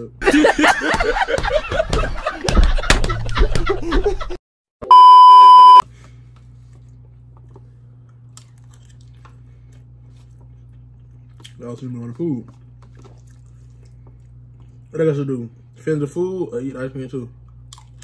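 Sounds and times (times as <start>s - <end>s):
loud single-pitch test tone beep: 4.8s - 5.8s.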